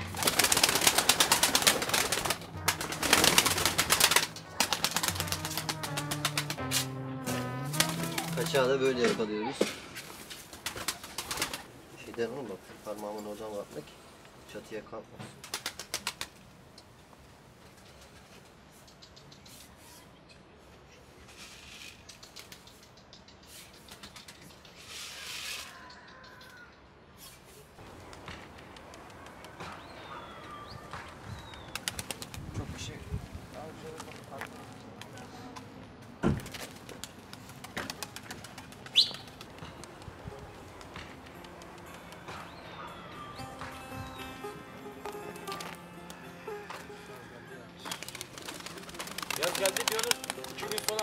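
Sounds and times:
pigeon wings flapping: 0.0 - 6.8, 7.4 - 8.7, 10.0 - 11.7, 15.3 - 16.5, 27.8 - 30.0, 31.0 - 32.6, 36.3 - 42.4, 45.4 - 45.8, 47.8 - 51.0
background music with low notes: 0.0 - 9.5, 39.6 - 51.0
pigeon being handled rustling: 0.1 - 6.6, 47.9 - 51.0.

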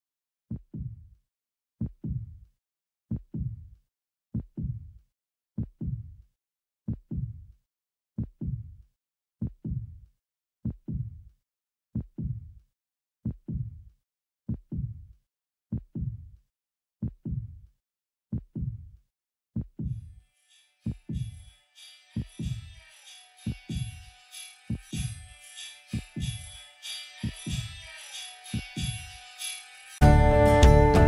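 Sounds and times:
heartbeat: 0.5 - 1.0, 1.8 - 2.4, 3.1 - 3.7, 4.4 - 4.9, 5.6 - 6.2, 6.9 - 7.4, 8.2 - 8.7, 9.4 - 10.0, 10.7 - 11.2, 12.0 - 12.5, 13.3 - 13.8, 14.5 - 15.0, 15.7 - 16.3, 17.0 - 17.6, 18.3 - 18.9, 19.6 - 20.0.

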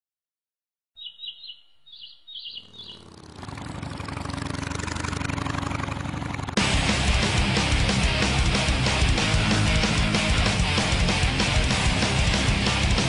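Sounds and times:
high warbling chirps: 1.0 - 3.2
distorted drone: 2.7 - 13.0
rock band with heavy guitars: 6.6 - 13.0.

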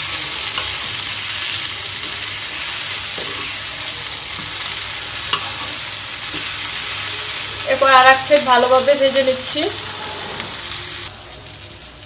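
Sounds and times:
eggplant sizzling in oil: 0.0 - 12.0
spatula tapping and scraping pan: 5.3 - 6.6.

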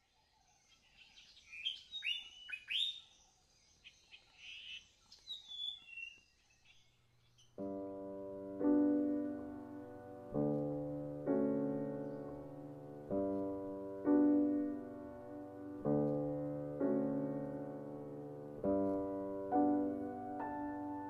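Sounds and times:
songbirds chirping: 0.0 - 21.0
soft piano chords: 7.6 - 21.0.

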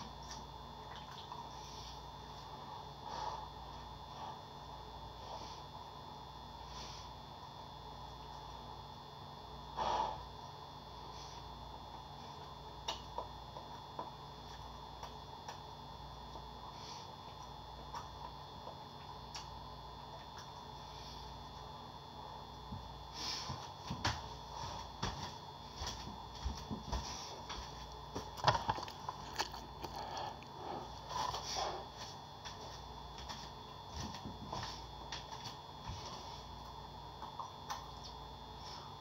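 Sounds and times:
person biting and chewing: 28.3 - 31.3.

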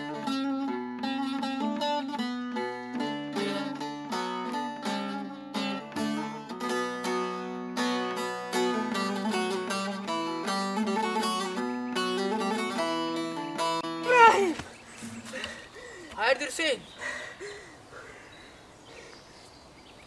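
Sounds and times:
plucked long-necked lute melody: 0.0 - 14.4.

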